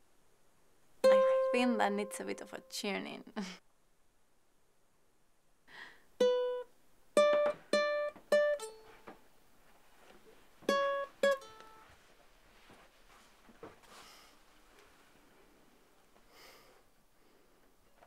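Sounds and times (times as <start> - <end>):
ukulele strings plucked: 1.0 - 2.4, 6.2 - 8.8, 10.6 - 11.8.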